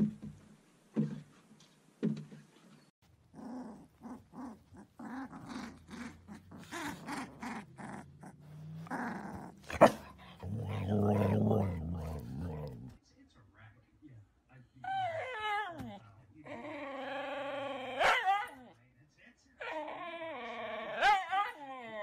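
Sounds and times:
dogs growling and whining: 3.2 - 13.0, 14.8 - 18.7, 19.6 - 22.0
dog barks: 9.6 - 12.8, 18.0 - 18.6, 21.0 - 21.5
loud sharp dog cry: 18.0 - 18.6.

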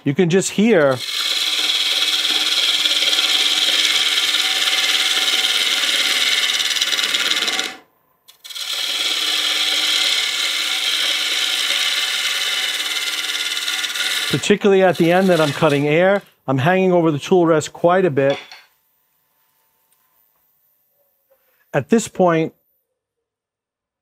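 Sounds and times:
lathe tool scraping wood: 0.0 - 16.3.

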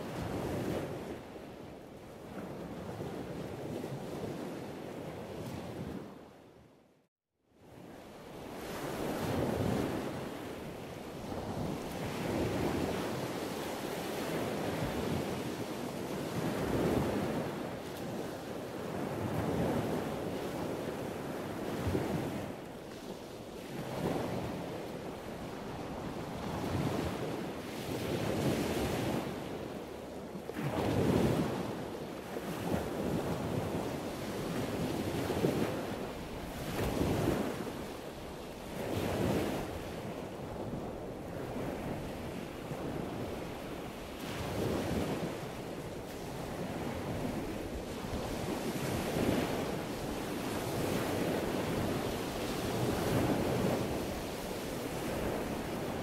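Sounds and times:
choppy sea rushing: 0.0 - 6.8, 7.6 - 56.0
wind buffeting microphone: 8.4 - 56.0.

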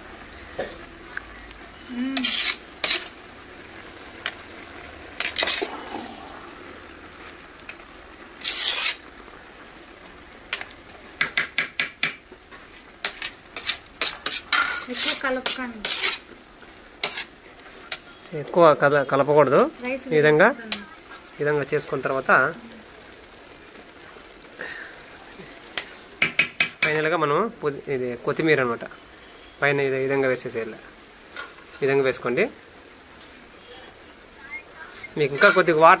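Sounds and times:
steady low hiss: 0.0 - 36.0
spoon scraping through rice: 2.2 - 3.2, 5.2 - 5.7, 8.4 - 9.0, 13.0 - 16.2.

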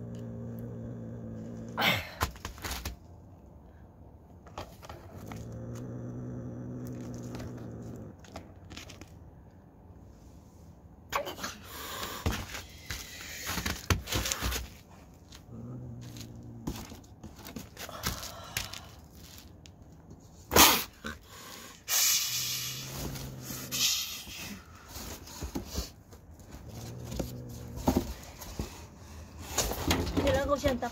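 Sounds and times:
cat growling: 0.0 - 2.2, 4.8 - 8.6, 15.4 - 17.2, 20.5 - 24.7, 26.5 - 28.8
cat hissing: 20.5 - 24.8.

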